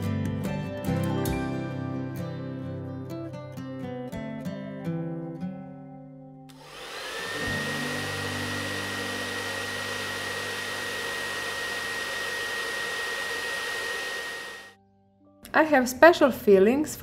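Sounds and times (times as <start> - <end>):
gentle guitar music: 0.0 - 6.5
blow dryer rushing air: 6.5 - 14.8.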